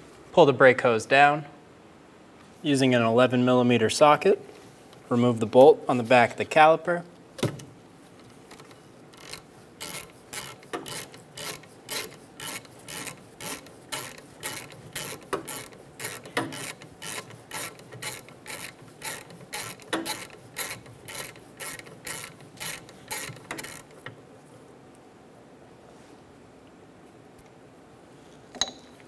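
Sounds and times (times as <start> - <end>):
hand ratchet clicking: 8.2 - 24.2.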